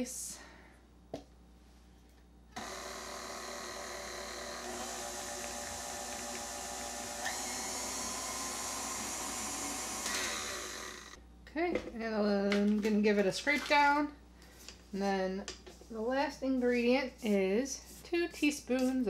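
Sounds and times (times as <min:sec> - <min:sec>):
stand mixer motor whine: 0:02.6 - 0:11.2.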